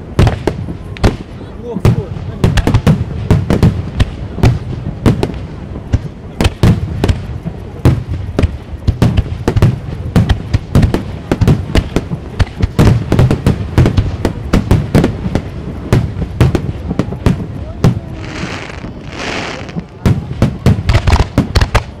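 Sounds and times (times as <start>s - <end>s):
fireworks bursting: 0.0s - 22.0s.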